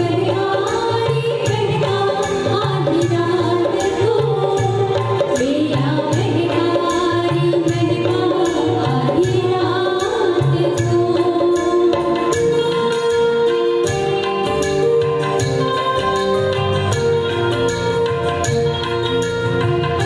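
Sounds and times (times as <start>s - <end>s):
women singing a duet: 0.0s - 14.1s
backing music with percussion beat: 0.0s - 20.0s.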